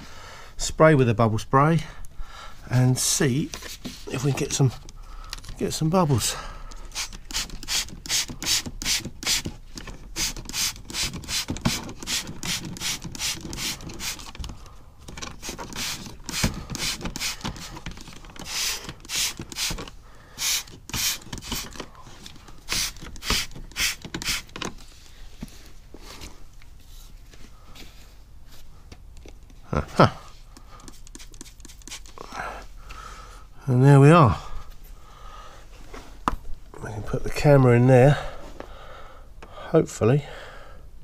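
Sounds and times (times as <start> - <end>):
spray bottle hissing squirts: 6.9 - 9.4, 18.4 - 19.8, 20.4 - 21.8, 22.7 - 24.6, 30.8 - 32.2.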